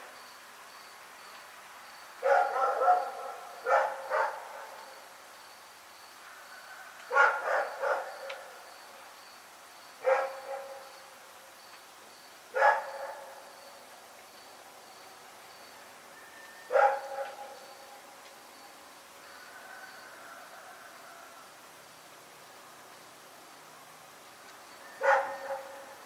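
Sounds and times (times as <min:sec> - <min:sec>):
faint insect chirping: 0:00.0 - 0:26.0
dog barking: 0:02.2 - 0:04.8, 0:07.1 - 0:08.5, 0:10.0 - 0:10.9, 0:12.6 - 0:13.4, 0:16.7 - 0:17.5, 0:25.0 - 0:26.0.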